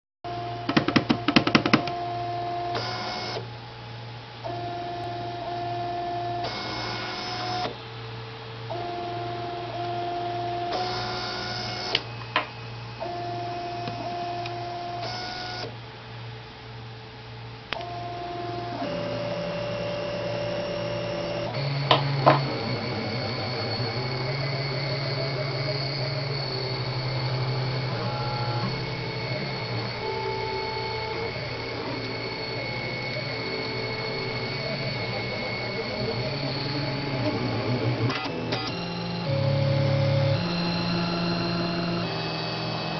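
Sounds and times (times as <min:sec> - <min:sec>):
stepper motors whining: 0:08.7 - 0:15.7, 0:17.8 - 0:42.9
steady low hum: 0:15.8 - 0:42.9.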